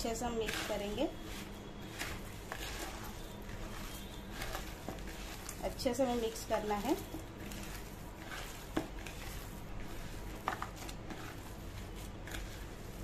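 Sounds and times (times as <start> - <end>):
hands squishing food mixture: 0.0 - 13.0.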